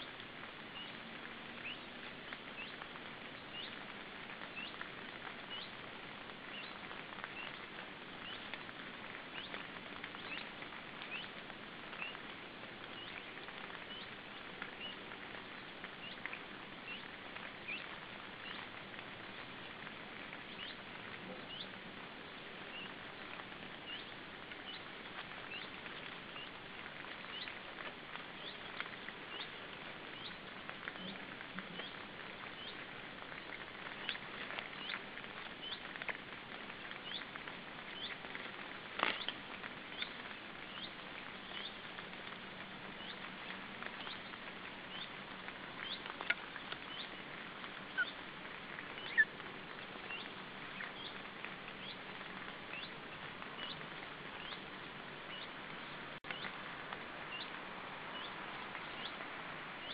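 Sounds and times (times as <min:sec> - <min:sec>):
high-pitched bird peeps: 0:47.9 - 0:48.2, 0:49.0 - 0:49.3.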